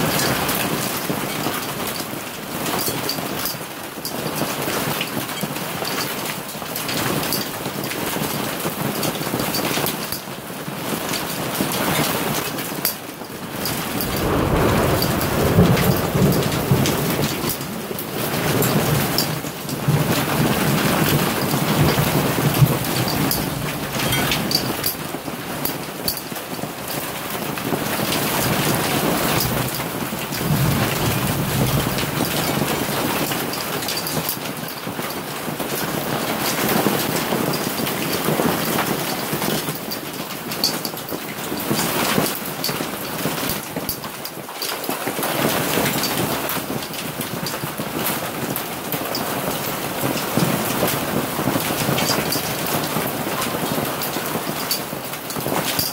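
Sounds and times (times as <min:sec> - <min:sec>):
hailstones striking: 0:00.0 - 0:55.9
heavy rain: 0:00.0 - 0:55.9
thunder rumbling: 0:13.5 - 0:25.5, 0:26.8 - 0:33.9.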